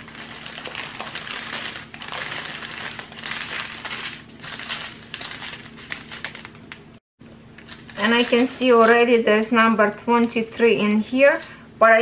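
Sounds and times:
plastic bags crinkling: 0.0s - 7.0s, 7.6s - 9.3s.

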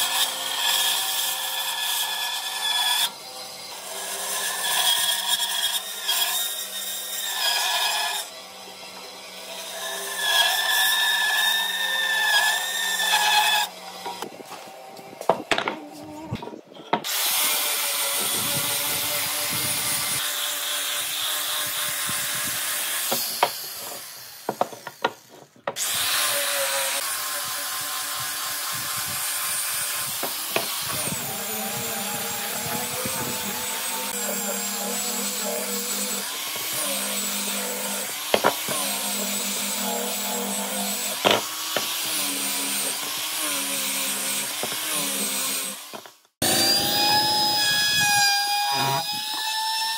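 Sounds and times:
power tool running on wood: 21.1s - 49.5s.

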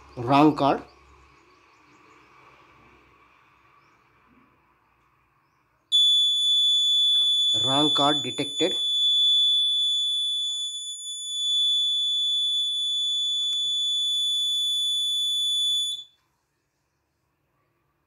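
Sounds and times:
high-pitched buzzer alarm tone: 5.9s - 16.1s.

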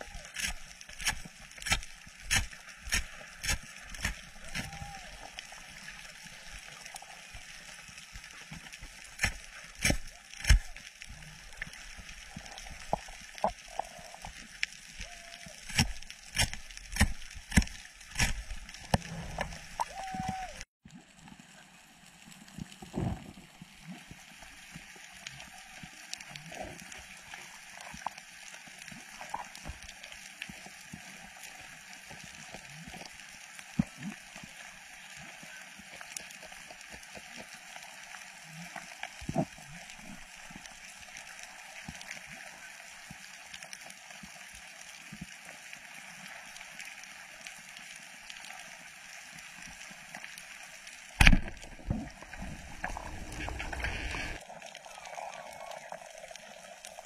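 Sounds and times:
steady watery hiss: 0.0s - 20.7s, 21.4s - 57.0s
water sloshing and gurgling: 15.6s - 21.2s, 51.0s - 57.0s
clicks and pops: 51.2s - 54.4s.

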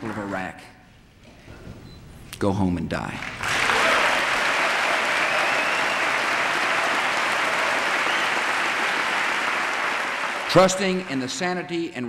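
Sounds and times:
audience applauding: 0.0s - 0.5s, 3.2s - 11.9s.

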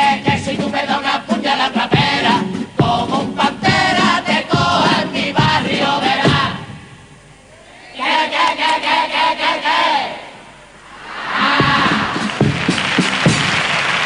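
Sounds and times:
drum beat: 0.0s - 0.9s, 1.8s - 6.6s, 11.4s - 13.9s
men's choir singing in unison: 0.0s - 6.7s, 7.9s - 10.4s, 11.1s - 12.4s.

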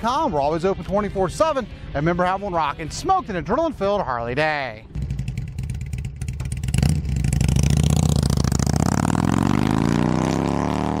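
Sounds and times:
motorcycle engine revving: 4.9s - 11.0s.

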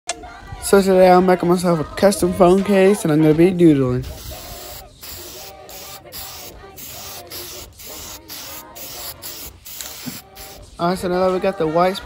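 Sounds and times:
spray paint can hissing: 4.0s - 10.8s.

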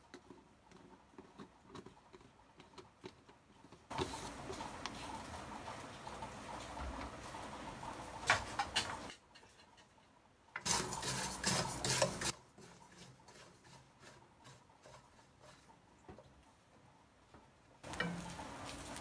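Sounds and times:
spoon scraping salt in metal pan: 10.6s - 15.8s.

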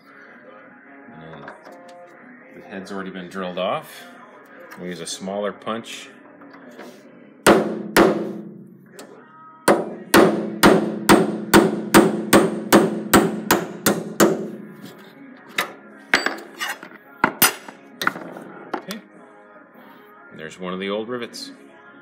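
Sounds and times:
hammer striking metal punch: 7.5s - 8.6s, 9.7s - 14.6s.

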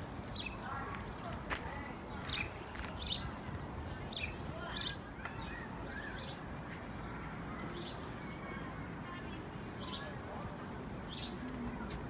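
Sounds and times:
low outdoor background noise: 0.0s - 12.0s
birds chirping: 0.2s - 8.3s, 11.0s - 11.4s.

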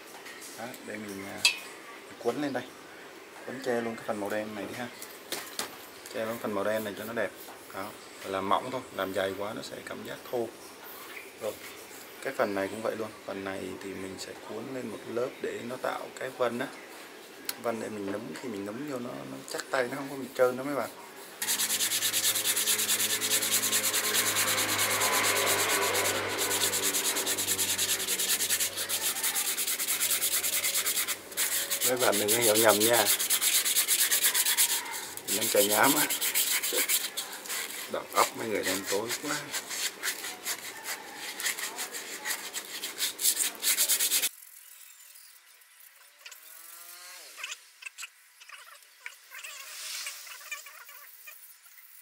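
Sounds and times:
sandpaper rubbing wood: 20.1s - 44.3s.

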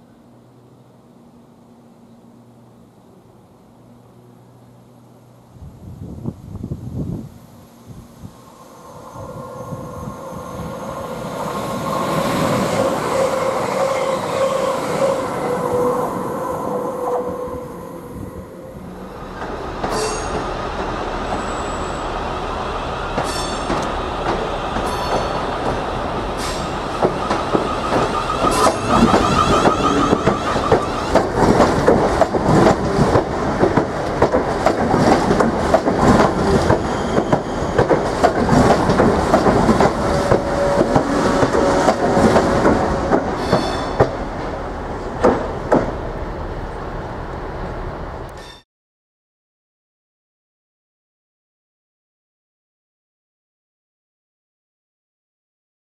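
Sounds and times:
train wheels clattering over joints: 23.2s - 46.0s.

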